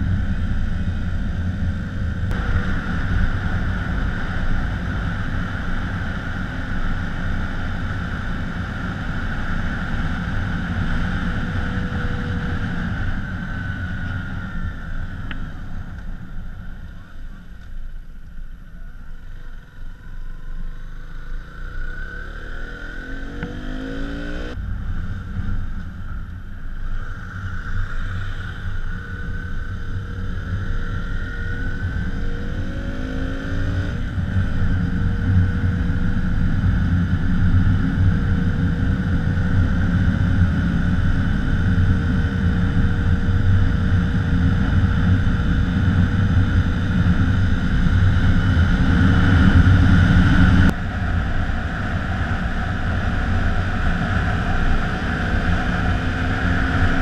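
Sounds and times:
wind rush on microphone: 0:00.0 - 0:17.6, 0:23.4 - 0:57.0
motorcycle engine revving: 0:19.3 - 0:50.8.

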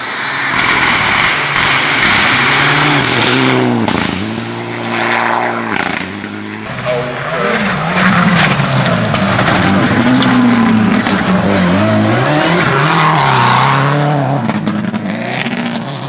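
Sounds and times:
rally car engine revving: 0:00.0 - 0:16.0
tyres sliding on gravel: 0:06.7 - 0:13.8.

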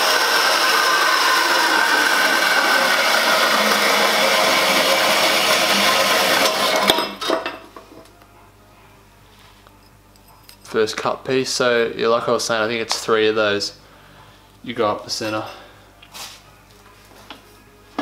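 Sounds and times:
bandsaw cutting metal tube: 0:00.0 - 0:07.6.

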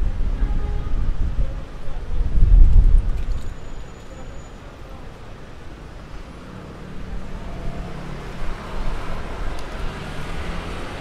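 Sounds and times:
rumble of passing vehicles: 0:00.0 - 0:11.0
engine hum: 0:05.7 - 0:11.0.

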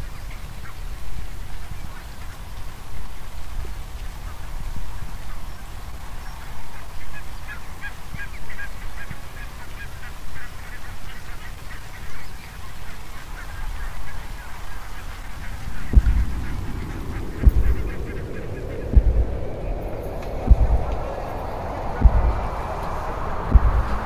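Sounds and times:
low rumble: 0:14.8 - 0:24.0.

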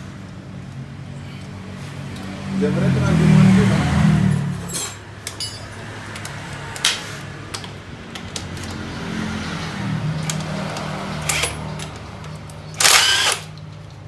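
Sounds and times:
metal being handled: 0:04.7 - 0:05.7.

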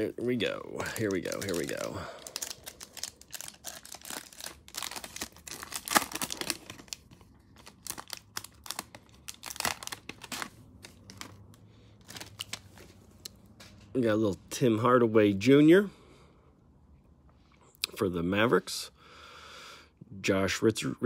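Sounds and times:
plastic wrapper tearing and crinkling: 0:00.8 - 0:13.0
trading cards handled: 0:00.9 - 0:13.9.

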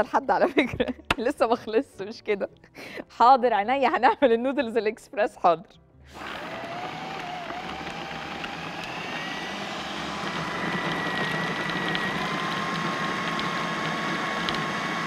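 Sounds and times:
food processor whirring: 0:06.1 - 0:15.0.

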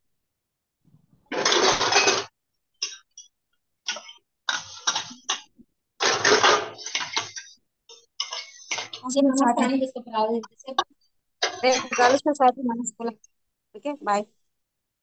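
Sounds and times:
dishes clattering over microphone: 0:01.3 - 0:09.1, 0:10.4 - 0:12.3.

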